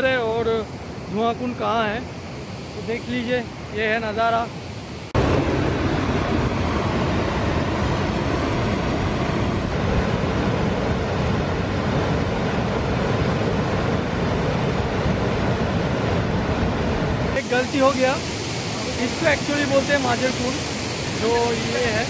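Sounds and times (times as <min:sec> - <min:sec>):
waterfall rushing over rocks: 0:17.4 - 0:22.0.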